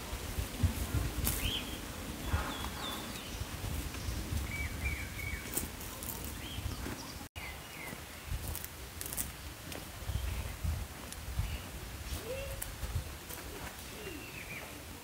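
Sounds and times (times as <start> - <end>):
small birds chirping: 1.0 - 10.8, 13.4 - 15.0.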